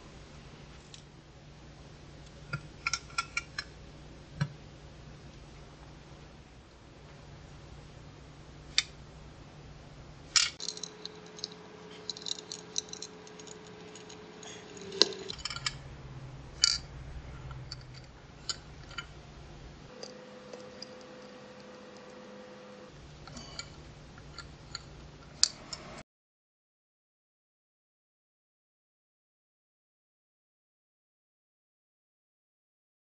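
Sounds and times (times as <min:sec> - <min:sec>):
faint steady hum: 0:00.0 - 0:26.0
pliers clicking against metal: 0:10.4 - 0:15.8
metal chain links clinking: 0:10.4 - 0:15.9.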